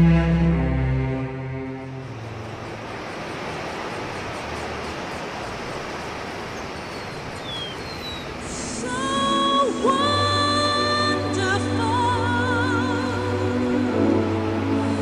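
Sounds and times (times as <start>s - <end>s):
music with long held notes: 0.0s - 2.2s, 8.7s - 15.0s.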